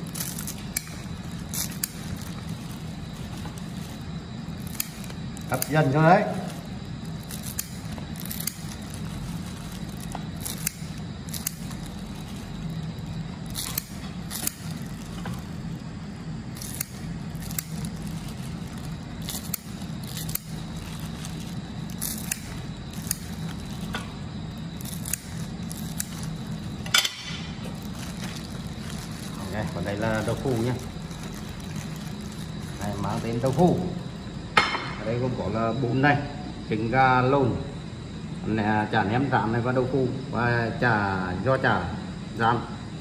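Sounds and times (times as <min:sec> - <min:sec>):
steady low hum: 0:00.0 - 0:43.0
scissors snipping crisp food: 0:04.6 - 0:15.5, 0:16.5 - 0:26.8.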